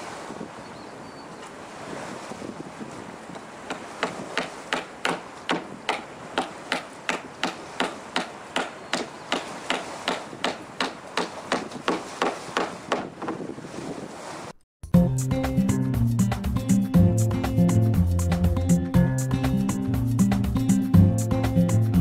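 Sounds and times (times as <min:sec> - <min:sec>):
hammer striking wood: 0:03.4 - 0:13.4.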